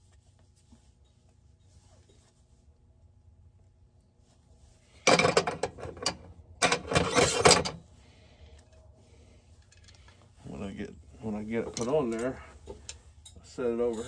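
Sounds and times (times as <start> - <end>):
metal parts and tools clattering: 5.0 - 7.8, 11.5 - 14.0.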